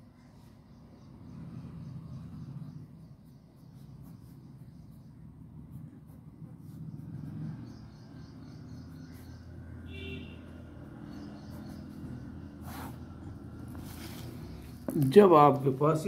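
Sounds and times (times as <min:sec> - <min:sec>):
low background rumble: 0:00.2 - 0:09.8
pen scratching on paper: 0:03.0 - 0:09.7, 0:10.4 - 0:14.8.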